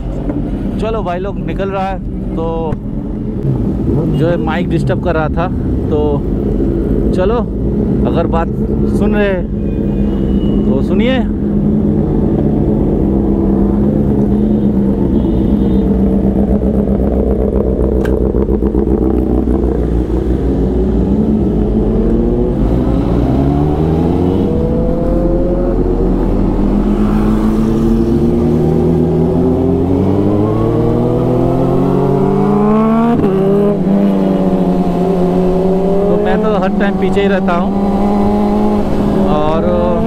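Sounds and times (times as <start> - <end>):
motorbike engine accelerating: 11.4 - 40.0.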